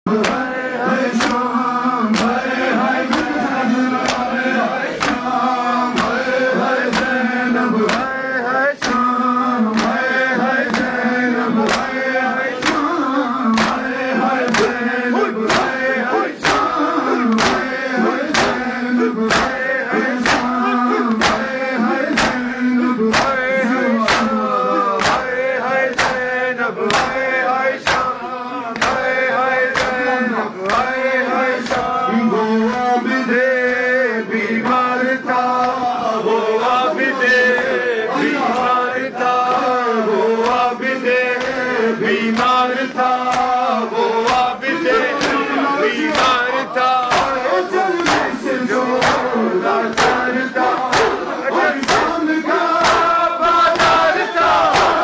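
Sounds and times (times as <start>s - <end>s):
men chanting together: 0.1s - 55.0s
hands slapping chests: 0.2s - 1.5s, 2.1s - 7.2s, 7.8s - 8.2s, 8.8s - 31.0s, 31.6s - 32.0s, 40.4s - 43.6s, 44.2s - 55.0s.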